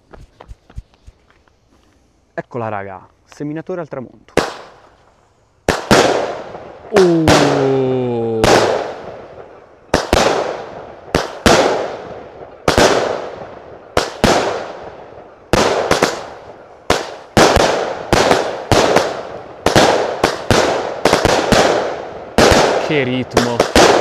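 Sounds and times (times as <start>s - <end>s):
firework reports: 5.7s - 13.3s, 15.4s - 24.0s.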